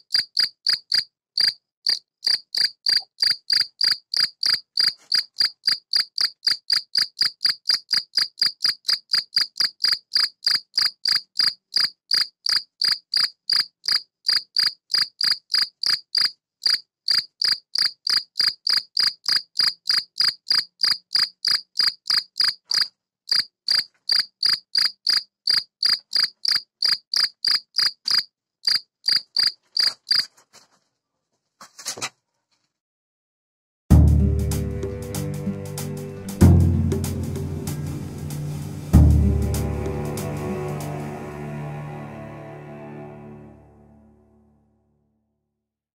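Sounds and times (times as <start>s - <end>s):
cricket chirping: 0.0s - 30.3s.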